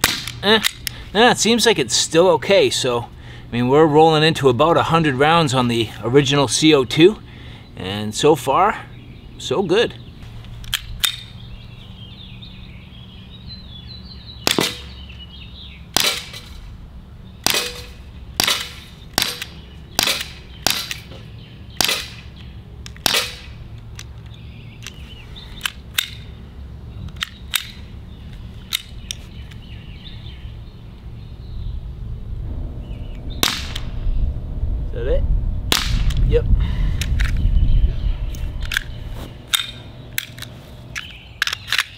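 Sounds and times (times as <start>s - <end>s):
air pistol shots: 0.0s - 0.9s, 14.4s - 15.0s, 15.9s - 16.5s, 17.4s - 21.1s, 21.8s - 22.4s, 23.0s - 23.6s.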